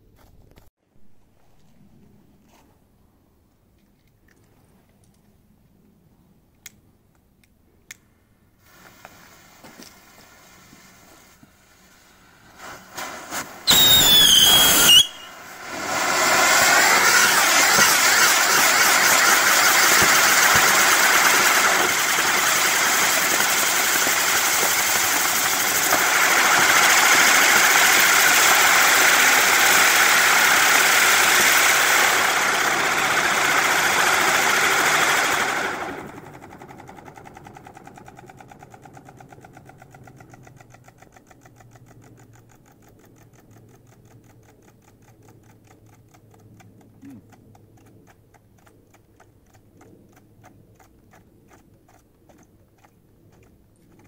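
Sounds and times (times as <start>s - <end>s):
firework hissing rush: 8.6s - 36.3s
faint firework crackling: 8.6s - 40.3s
firework burst with falling whistle: 8.8s - 35.5s.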